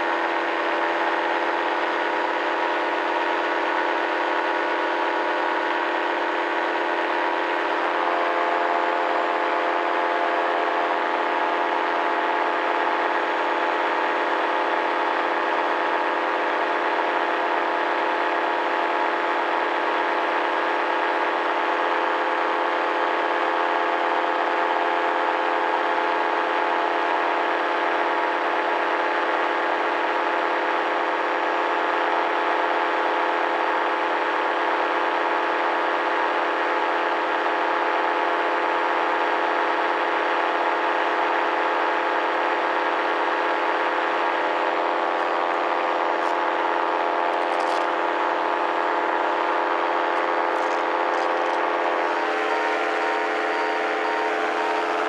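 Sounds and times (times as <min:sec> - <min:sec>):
paramotor engine droning: 0:43.6 - 0:55.0.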